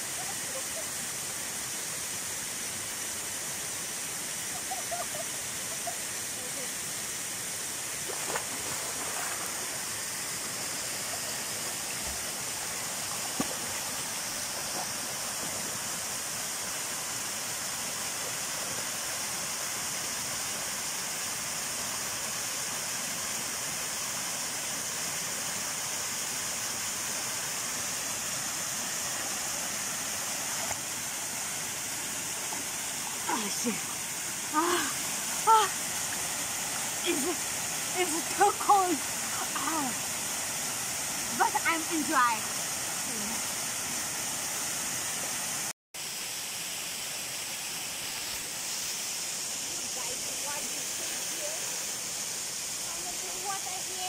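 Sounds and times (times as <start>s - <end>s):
waterfall rushing: 0.0s - 54.0s.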